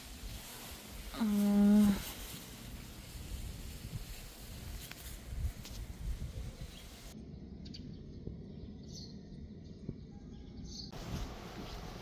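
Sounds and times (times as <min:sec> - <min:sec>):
faint bird chirps: 0:06.4 - 0:12.0.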